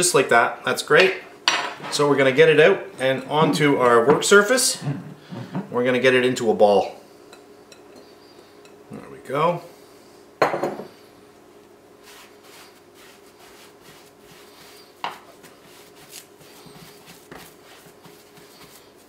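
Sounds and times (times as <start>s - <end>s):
glass bowl set down: 10.4s - 10.9s
dough squeezed by hand: 12.0s - 19.0s.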